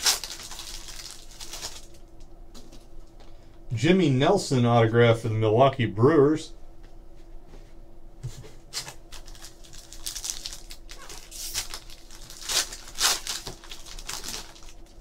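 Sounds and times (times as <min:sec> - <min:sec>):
foil wrapper tearing and crinkling: 0:00.0 - 0:02.0, 0:08.8 - 0:15.0.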